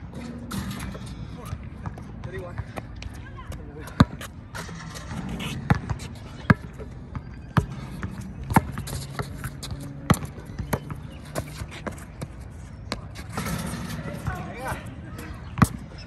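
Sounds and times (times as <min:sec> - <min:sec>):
basketball bouncing on concrete: 0:01.5 - 0:12.3.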